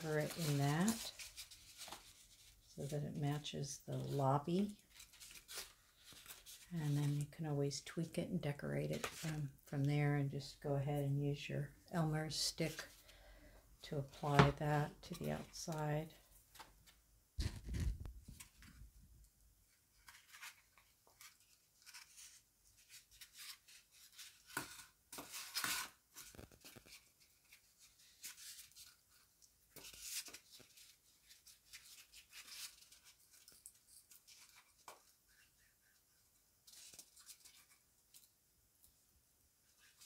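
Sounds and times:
paper and foam board rustling: 0:00.0 - 0:07.3, 0:14.1 - 0:18.9, 0:19.7 - 0:38.3.

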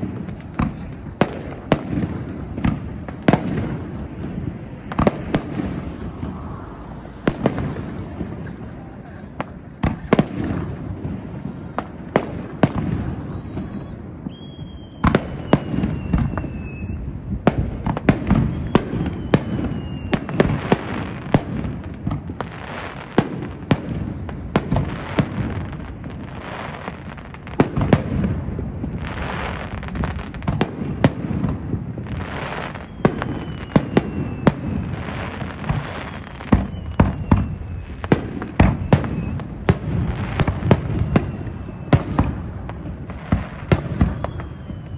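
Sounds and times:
firework bangs: 0:00.0 - 0:44.9
low rumble: 0:02.8 - 0:09.8
firework whistles falling in pitch: 0:03.3 - 0:09.0, 0:12.6 - 0:21.8, 0:28.9 - 0:44.9.

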